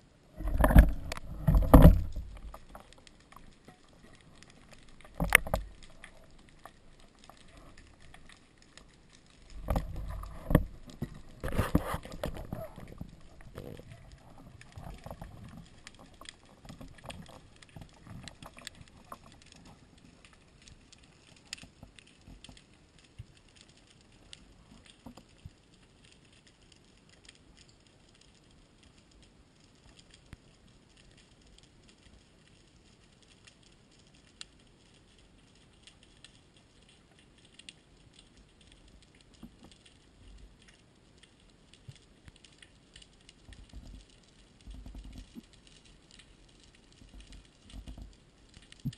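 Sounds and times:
low rumbling water: 0.0 - 29.8
sharp clicks and crackles: 0.3 - 48.9.

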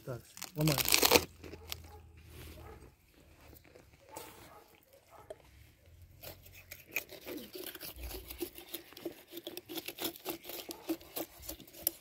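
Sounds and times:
bones cracking and snapping: 0.3 - 1.9.

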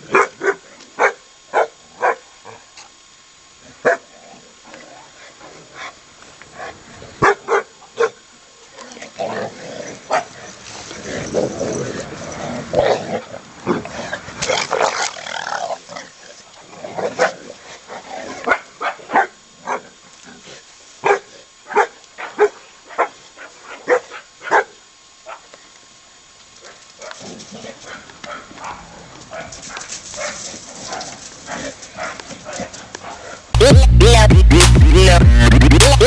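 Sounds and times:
dogs barking: 0.0 - 2.3, 3.8 - 4.1, 7.2 - 8.2, 18.4 - 20.0, 21.0 - 25.5, 26.6 - 33.3.

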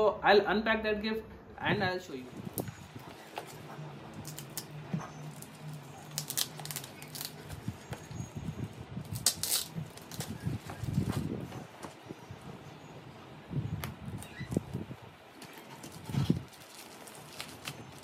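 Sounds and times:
scissors snipping wrapping: 2.5 - 8.1, 9.0 - 11.3, 14.2 - 18.0
wrapping paper tearing: 2.6 - 7.9, 9.0 - 11.3, 15.4 - 18.0.

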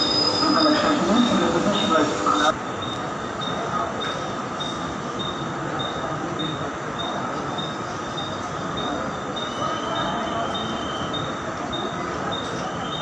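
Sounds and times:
railway platform noise: 0.0 - 13.0.

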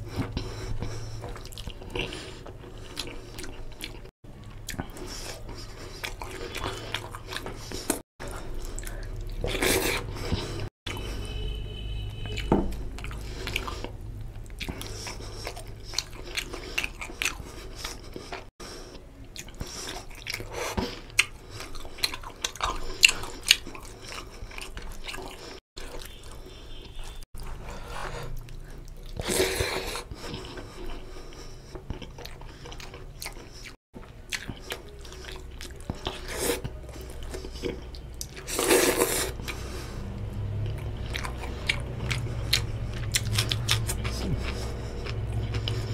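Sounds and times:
wet chewing and lip smacks: 0.1 - 11.2, 12.2 - 18.5, 28.2 - 45.9.

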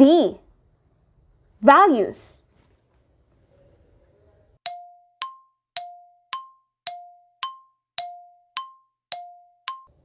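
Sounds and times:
countdown timer ticks alternating tones: 4.6 - 9.9.

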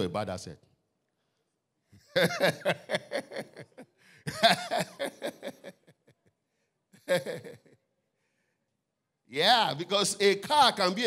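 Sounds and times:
man laughing into microphone: 2.1 - 6.2, 7.0 - 7.8.

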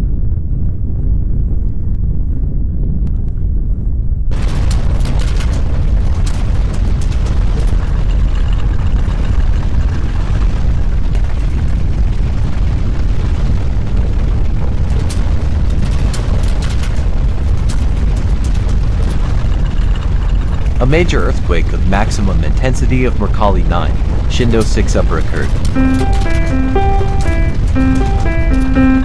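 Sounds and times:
deep earthquake rumble: 0.0 - 29.0
rattles and knocks: 4.3 - 12.2, 13.2 - 22.2, 23.9 - 29.0.

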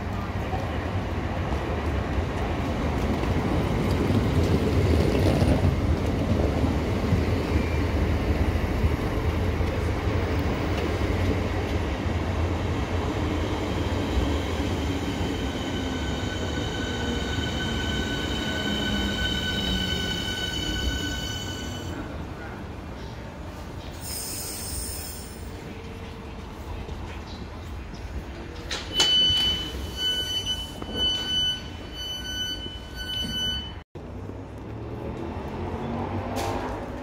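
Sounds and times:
high-pitched brake squeal: 14.7 - 22.0, 24.0 - 25.5, 28.9 - 33.8.

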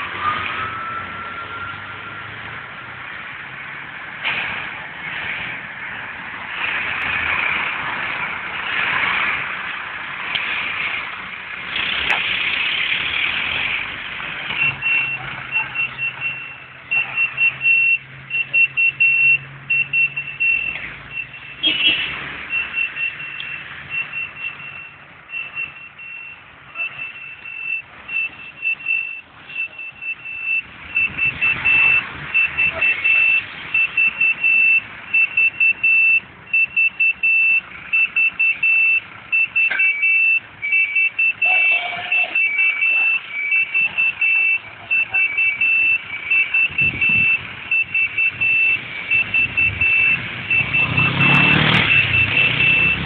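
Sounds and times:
reversing alarm beeping: 0.0 - 2.4, 14.5 - 53.0
fire engine road and engine noise: 0.0 - 53.0.

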